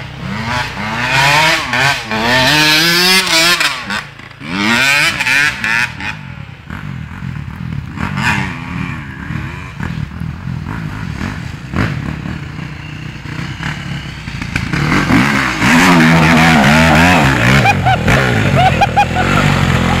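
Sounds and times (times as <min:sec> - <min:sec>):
dirt bike engines revving: 0:00.0 - 0:20.0.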